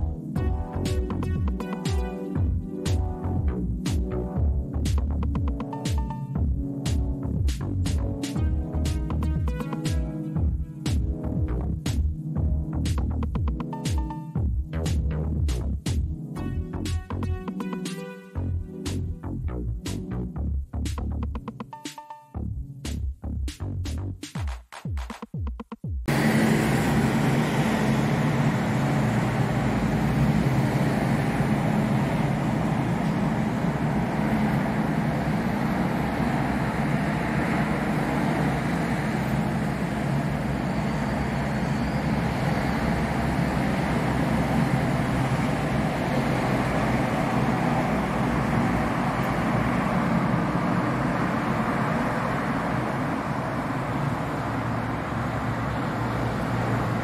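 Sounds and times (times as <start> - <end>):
city traffic noise: 26.1 - 57.0.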